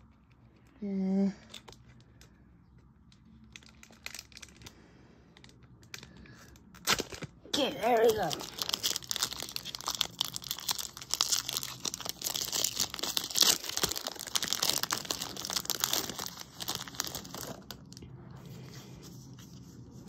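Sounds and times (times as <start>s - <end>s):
foil wrapper crinkling: 3.1s - 18.1s.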